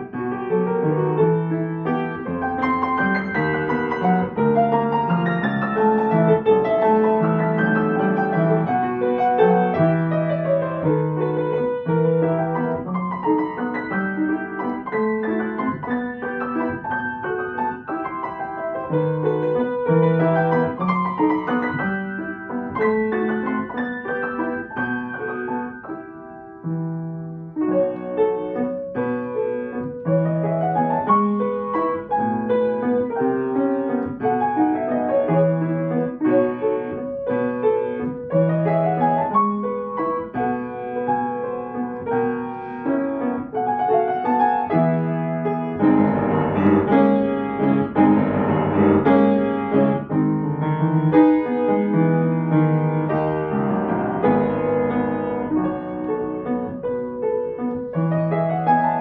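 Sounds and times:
classical piano piece: 0:00.0 - 0:59.0.

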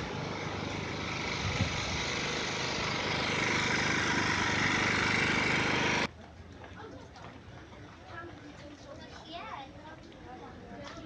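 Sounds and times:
small engine running: 0:00.0 - 0:06.1.

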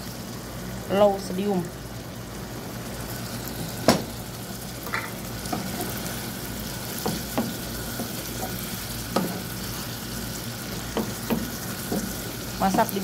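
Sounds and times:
sauce sizzling in a pan: 0:00.0 - 0:13.0
spoon knocking against pan: 0:07.0 - 0:07.6, 0:10.8 - 0:13.0.

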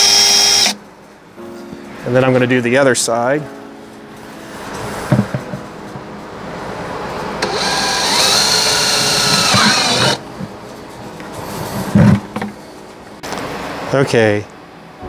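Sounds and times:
cordless drill whining: 0:00.0 - 0:00.8, 0:07.4 - 0:10.2
low knock: 0:05.1 - 0:06.1.

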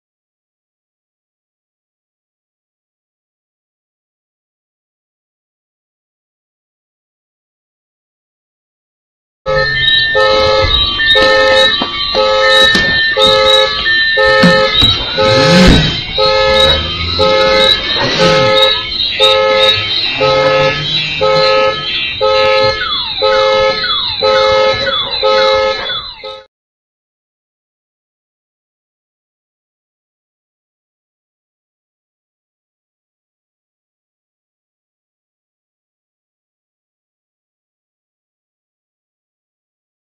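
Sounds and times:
rising and falling sweep: 0:09.5 - 0:23.2
high steady tones: 0:09.5 - 0:26.5
pulsing electronic tones: 0:09.5 - 0:26.5.

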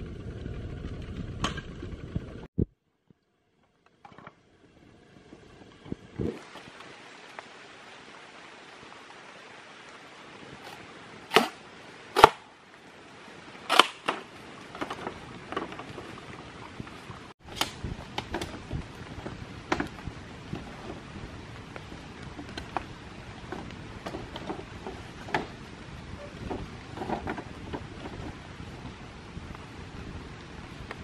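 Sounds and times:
rain hissing: 0:04.6 - 0:31.0
machete chopping bamboo: 0:11.3 - 0:11.6, 0:12.2 - 0:12.5, 0:13.7 - 0:14.2.

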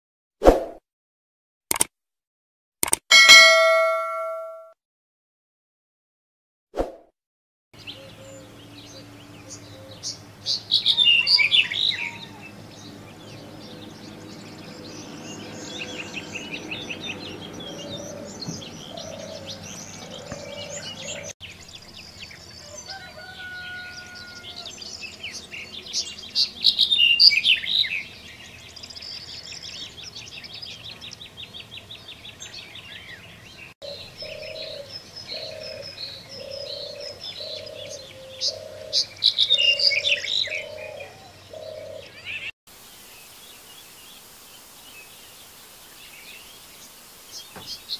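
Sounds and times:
fast bird trill: 0:03.1 - 0:04.6
low repeated cooing: 0:17.6 - 0:21.3, 0:33.9 - 0:42.2.

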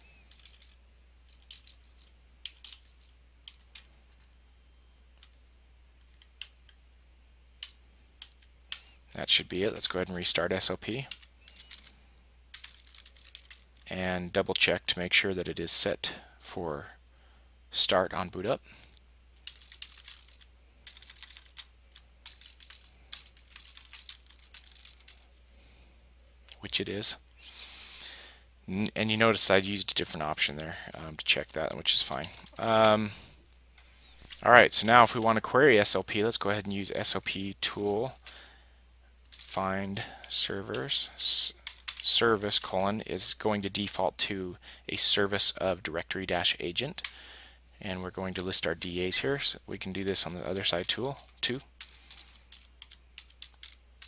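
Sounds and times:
low electrical hum: 0:00.0 - 0:54.0
computer keyboard typing: 0:00.3 - 0:04.2, 0:07.6 - 0:09.0, 0:11.0 - 0:11.9, 0:12.5 - 0:13.8, 0:19.4 - 0:25.2, 0:40.7 - 0:42.2, 0:50.6 - 0:53.8
computer keyboard key clicks: 0:51.8 - 0:53.8.

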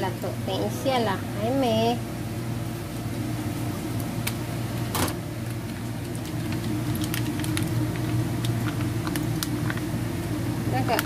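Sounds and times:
steady low hum: 0:00.0 - 0:11.0
plastic bag crinkling: 0:05.5 - 0:09.9.

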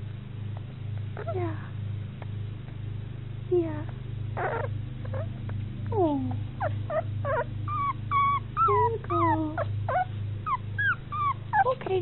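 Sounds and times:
low hum: 0:00.0 - 0:12.0
puppy whimpering: 0:04.4 - 0:12.0.

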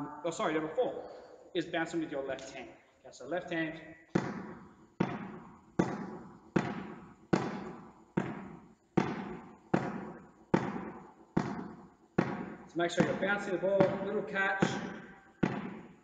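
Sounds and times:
ball bouncing on hall floor: 0:04.0 - 0:16.0.

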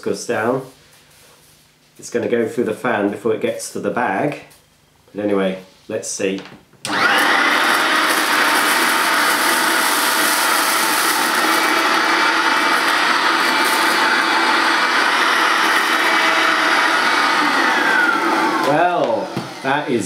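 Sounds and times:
handheld vacuum cleaner whining: 0:06.9 - 0:20.0.

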